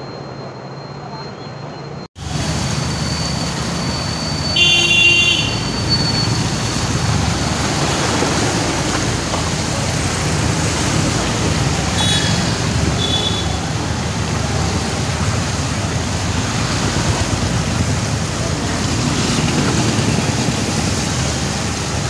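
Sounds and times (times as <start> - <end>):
traffic noise: 0.0 - 22.0
vehicle horn honking: 4.3 - 6.4, 11.9 - 13.8.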